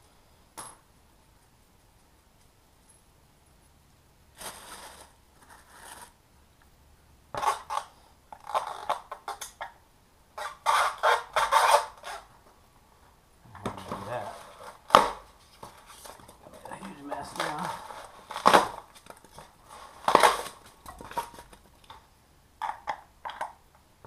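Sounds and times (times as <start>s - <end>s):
plastic wrap rustling: 4.3s - 6.2s, 13.6s - 22.0s
styrofoam squeaking and crunching: 7.4s - 9.4s, 10.4s - 12.3s, 17.1s - 21.6s
sharp crack: 13.5s - 15.3s, 17.0s - 19.3s, 20.0s - 22.0s.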